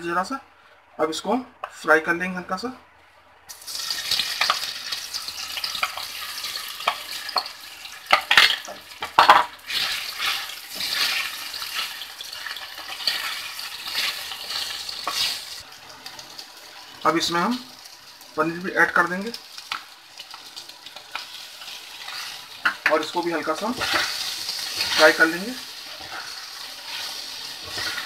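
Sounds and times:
food sizzling in hot oil: 3.5s - 28.0s
spoon knocking and scraping pan: 5.6s - 15.4s, 23.6s - 28.0s.

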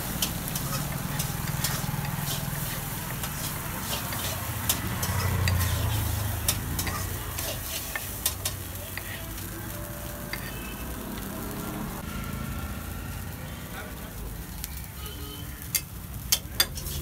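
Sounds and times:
metal spatula scraping griddle: 0.0s - 9.3s, 10.3s - 10.8s, 15.6s - 17.0s
food sizzling: 0.0s - 17.0s.

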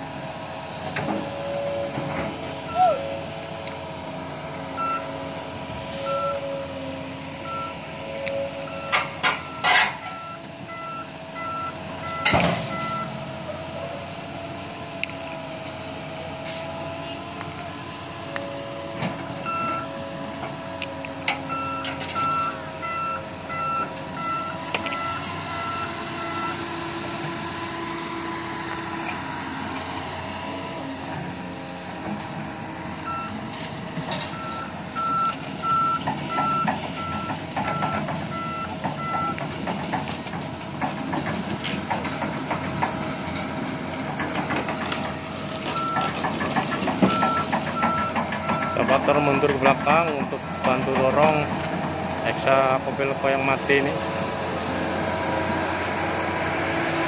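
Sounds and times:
diesel engines running: 0.0s - 57.0s
reversing alarm beeping: 2.7s - 3.0s, 4.8s - 5.1s, 6.0s - 6.7s, 7.4s - 13.3s, 19.4s - 20.0s, 21.5s - 26.6s, 33.0s - 33.4s, 34.2s - 39.4s, 45.7s - 46.2s, 47.0s - 51.1s
clanking and knocking: 8.8s - 10.3s, 12.0s - 13.2s, 33.5s - 34.6s, 35.8s - 52.1s.

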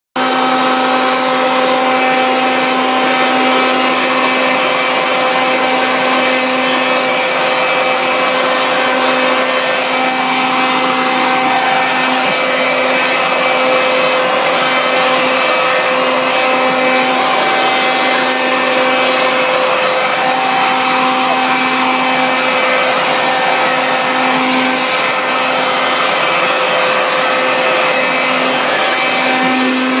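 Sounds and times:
leaf blower running: 0.2s - 30.0s.

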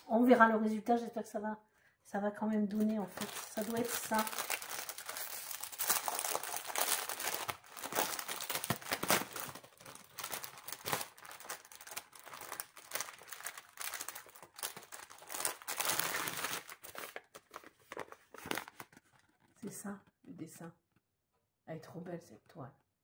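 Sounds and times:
plastic packaging crinkling: 2.7s - 19.6s.

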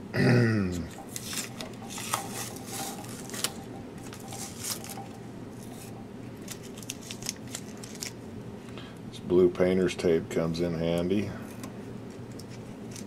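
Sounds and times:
tape peeling and crinkling: 1.0s - 8.2s, 12.1s - 13.0s.

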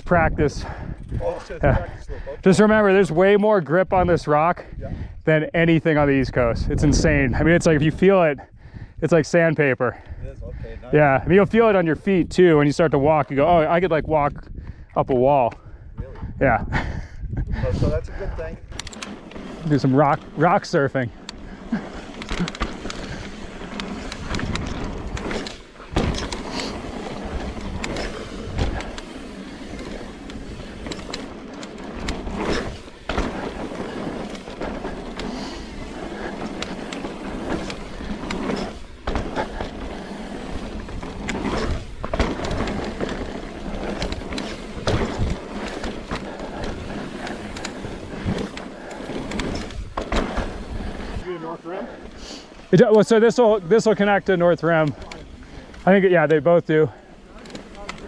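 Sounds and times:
bike tyres rolling on rock: 17.6s - 58.0s
bike knocks and rattles: 18.7s - 51.2s, 53.8s - 58.0s.

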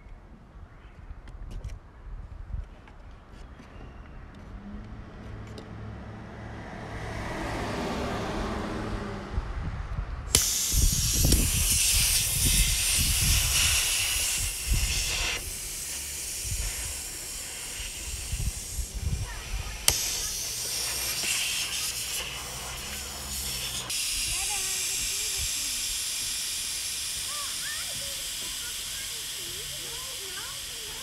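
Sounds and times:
compressed air hissing: 10.3s - 31.0s.

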